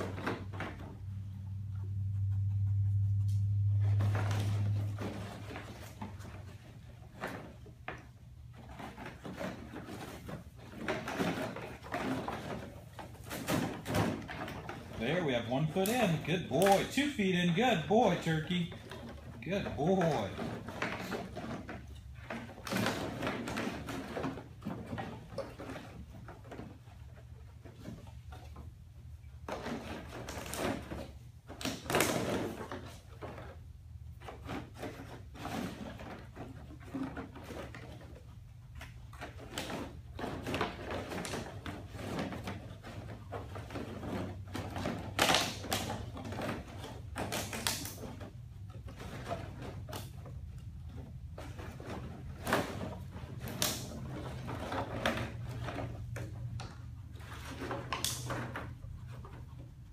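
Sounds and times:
plastic bottles clattering: 0.0s - 1.7s, 3.6s - 59.9s
steady low hum: 0.8s - 8.7s.

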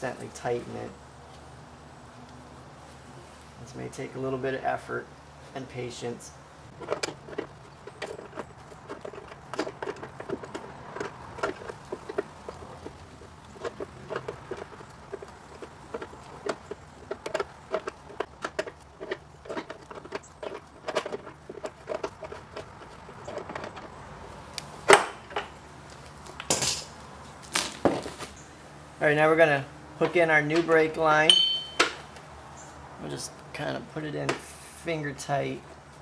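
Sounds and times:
wrench clanking on metal fitting: 30.5s - 32.0s
loud metal knock: 31.3s - 32.1s.

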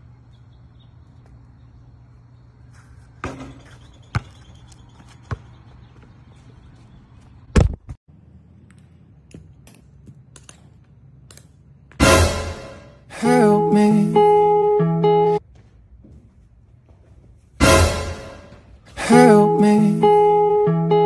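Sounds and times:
basketball bouncing: 3.2s - 6.2s.

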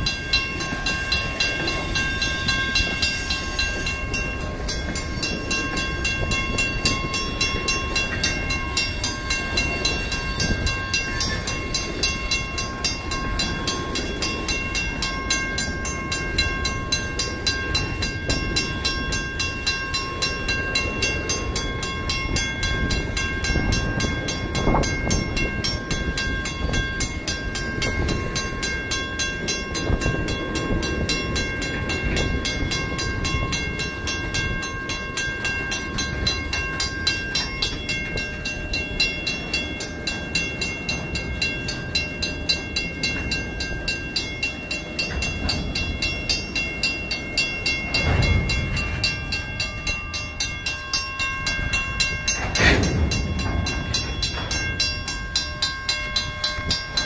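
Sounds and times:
crossing bell ringing: 0.0s - 57.0s
freight car wheels clacking on rails: 0.0s - 57.0s.

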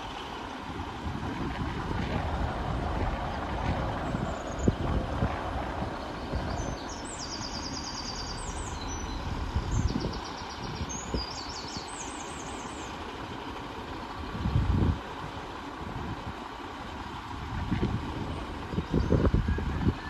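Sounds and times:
wind buffeting microphone: 0.0s - 11.9s, 12.9s - 20.0s
diesel train rumbling: 0.0s - 20.0s
high chirping trills: 6.0s - 12.8s.

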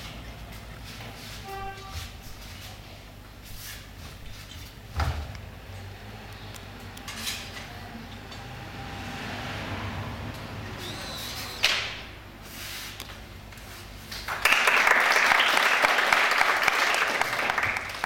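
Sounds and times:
audience clapping: 14.2s - 18.0s.

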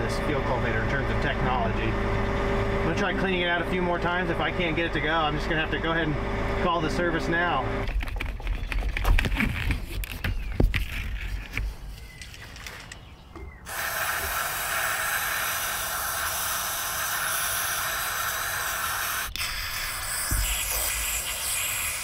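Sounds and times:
aerosol spray hiss: 13.7s - 22.0s.

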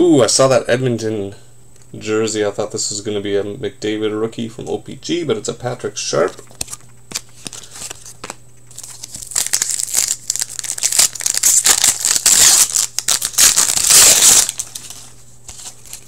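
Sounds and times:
foil wrapper tearing and crinkling: 6.6s - 16.0s.

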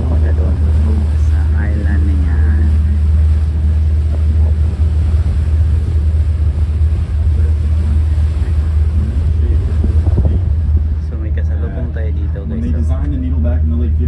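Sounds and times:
boat engine rumble: 0.0s - 14.0s
wind and water hiss: 0.0s - 14.0s.

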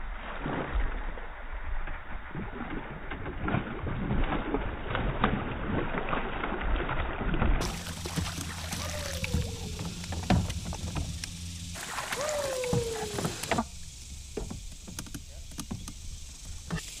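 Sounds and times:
fish thrashing and splashing: 3.2s - 13.7s
net and gear knocking on hull: 7.6s - 11.2s.

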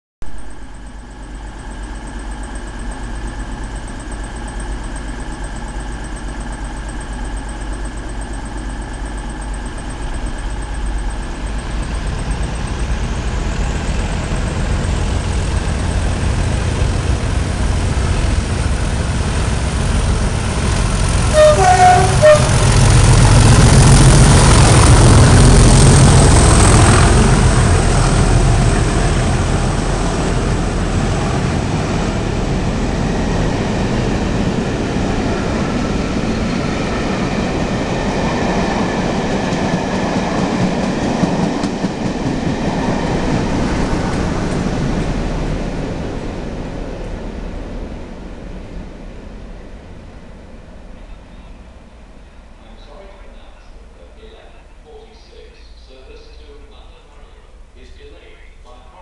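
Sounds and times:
diesel locomotive engine rumble: 0.3s - 59.0s
two-note train horn: 21.2s - 23.6s.

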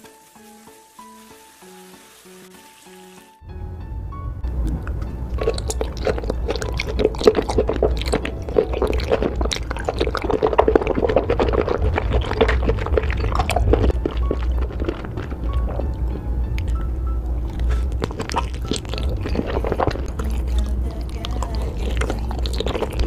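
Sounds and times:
wet sticky food squishing: 4.7s - 23.0s.

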